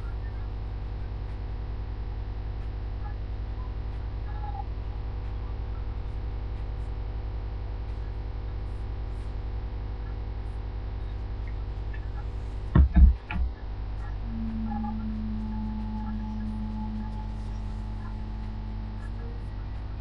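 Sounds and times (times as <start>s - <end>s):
electrical mains hum: 0.0s - 20.0s
phone handling bumps: 12.7s - 13.5s.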